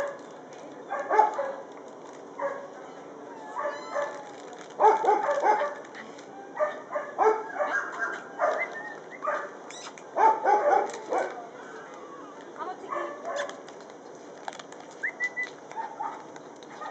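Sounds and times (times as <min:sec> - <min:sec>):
dog yipping and whining: 0:02.4 - 0:05.8, 0:06.6 - 0:11.3.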